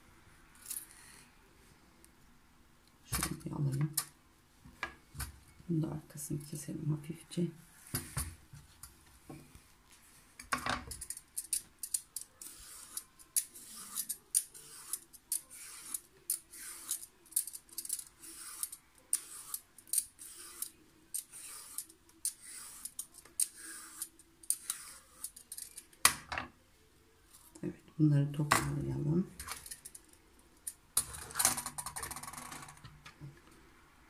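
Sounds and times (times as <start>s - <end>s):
peeler scraping vegetable skin: 11.0s - 25.8s.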